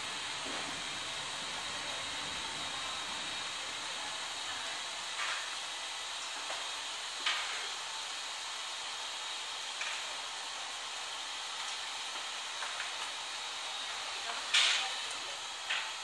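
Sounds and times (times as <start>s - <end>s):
blow dryers hissing: 0.0s - 16.0s.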